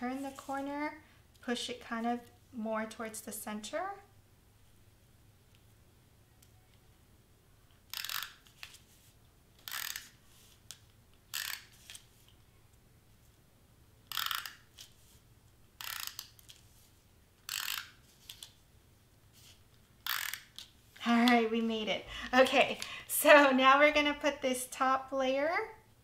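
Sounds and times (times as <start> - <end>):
tape runner zipping strokes: 7.9 - 9.0, 9.6 - 10.7, 11.3 - 12.2, 15.8 - 18.5, 19.4 - 20.7.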